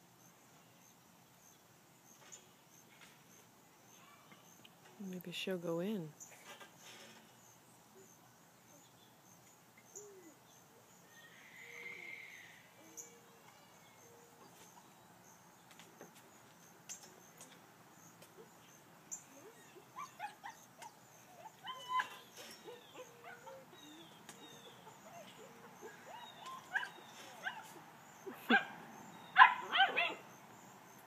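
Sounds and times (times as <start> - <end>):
dog whimpering and whining: 19.3 - 27.7.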